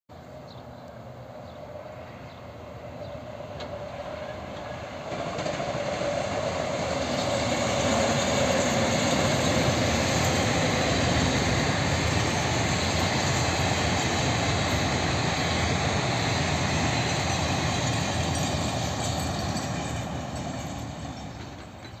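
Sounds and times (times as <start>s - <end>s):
train wheels running on track: 0.9s - 22.0s.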